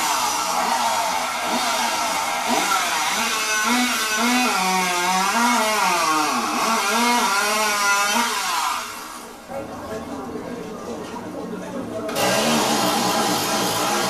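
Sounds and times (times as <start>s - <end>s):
chainsaw cutting at high revs: 0.0s - 9.2s, 12.1s - 14.0s.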